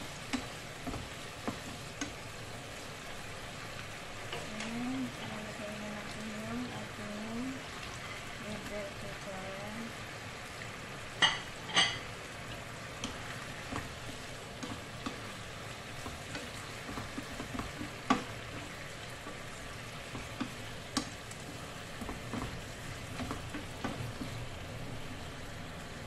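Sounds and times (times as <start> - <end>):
food sizzling in a frying pan: 0.0 - 26.0
utensil tapping a pan: 0.3 - 2.2, 16.0 - 19.4, 20.1 - 21.3
spatula scraping a pan: 7.9 - 8.4.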